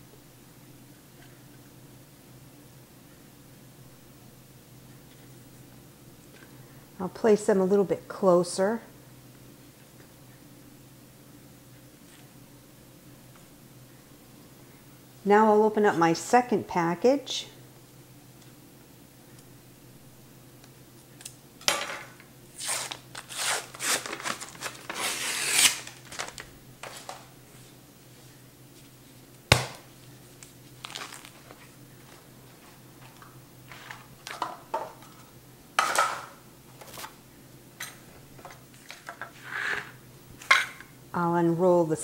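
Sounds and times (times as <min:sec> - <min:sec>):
paper wrapper crinkling and tearing: 0:22.6 - 0:27.1, 0:30.4 - 0:32.2
handling rustles: 0:30.0 - 0:34.4.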